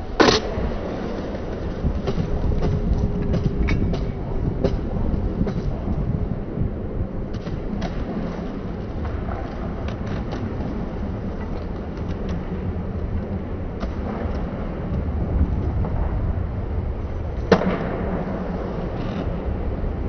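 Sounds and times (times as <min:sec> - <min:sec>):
skateboard wheels rolling on concrete: 0:00.0 - 0:20.0
skateboard knocking on lip: 0:01.4 - 0:15.1.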